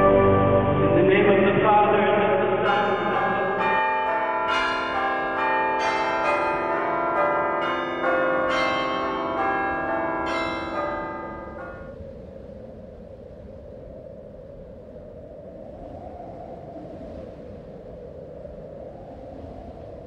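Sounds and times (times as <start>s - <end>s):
church bells ringing: 2.4s - 12.0s.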